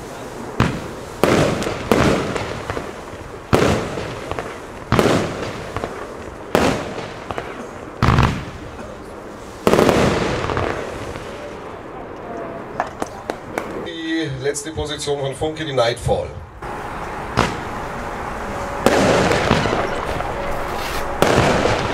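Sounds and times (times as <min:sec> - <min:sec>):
firework shells bursting: 0:00.5 - 0:11.6, 0:16.6 - 0:21.9.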